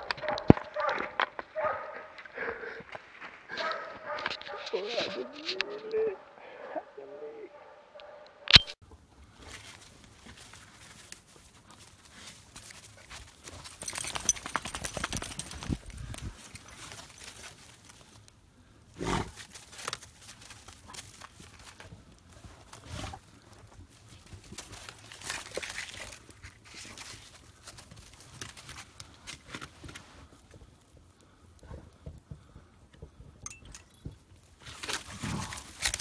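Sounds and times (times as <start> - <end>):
dog scrabbling and rustling: 12.5 - 15.9.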